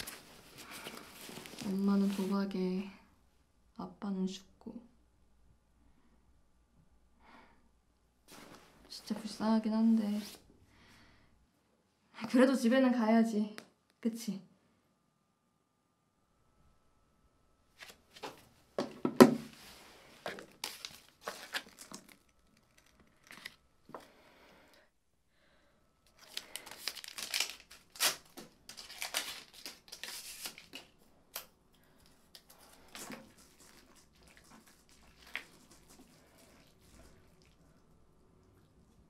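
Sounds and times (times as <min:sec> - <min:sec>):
plastic film crinkling and tearing: 0:20.3 - 0:23.6, 0:26.1 - 0:31.0
chopsticks pulled from wrapper: 0:26.1 - 0:30.9.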